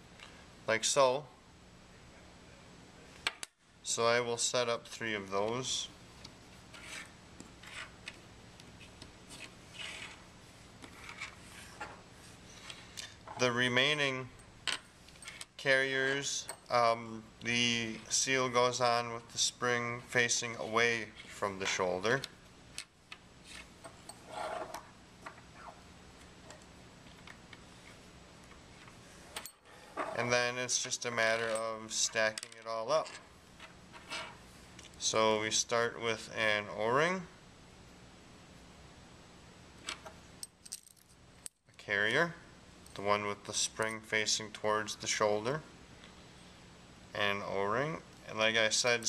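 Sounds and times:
low steady hum: 0.0s - 49.0s
parts rubbing and clicking: 6.6s - 12.0s, 22.8s - 25.8s.

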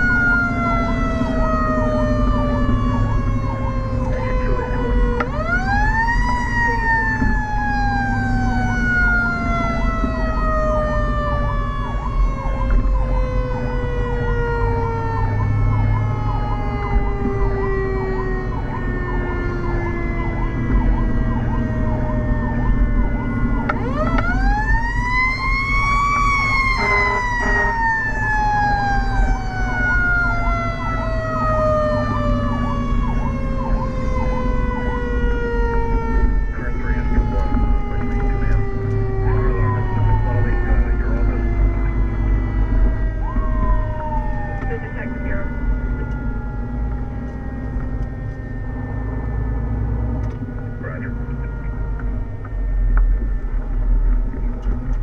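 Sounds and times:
electronic siren warble: 0.0s - 50.0s
mechanical siren wail: 0.0s - 55.0s
truck engine rumbling: 0.0s - 55.0s
short horn blasts: 26.8s - 27.8s.

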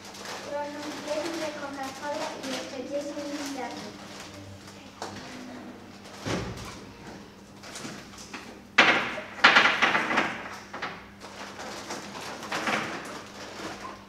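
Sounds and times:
plastic bag and packets crinkling: 0.0s - 7.0s, 9.8s - 14.0s.

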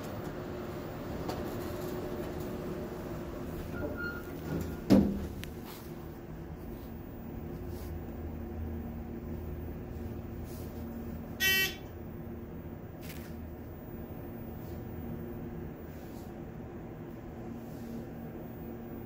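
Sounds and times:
elevator doors sliding shut: 3.6s - 5.4s
doors meeting with a thump: 3.8s - 5.3s.

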